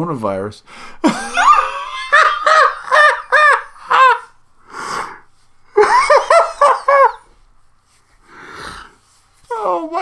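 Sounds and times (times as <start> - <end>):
man laughing in wailing bursts: 1.0 - 4.4, 5.7 - 7.4
sharp breath in: 4.6 - 5.4, 8.2 - 9.1.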